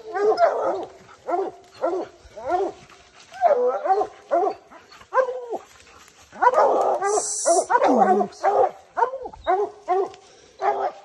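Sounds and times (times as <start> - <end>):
dogs barking and bawling: 0.0 - 11.0.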